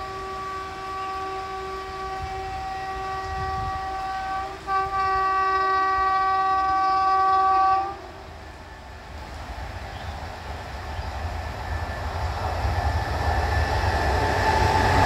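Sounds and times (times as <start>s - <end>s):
train horn blast: 0.0s - 8.6s.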